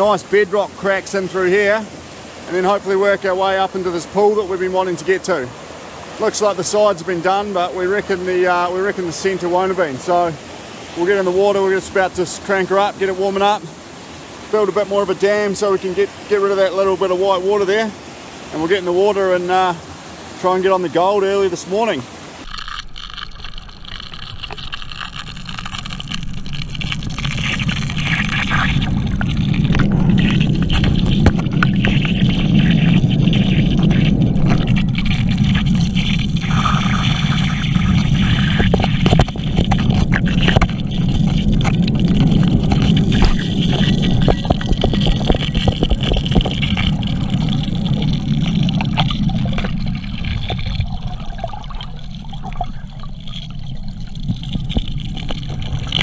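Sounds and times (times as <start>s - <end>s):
rushing water: 0.0s - 56.0s
muffled underwater motor drone: 26.1s - 56.0s
stones clicking and knocking: 38.4s - 50.9s.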